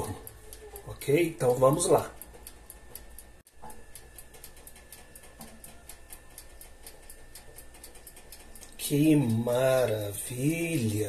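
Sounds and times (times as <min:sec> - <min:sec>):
faint steady hum: 0:00.0 - 0:11.0
oven timer ticking rapidly: 0:00.0 - 0:11.0.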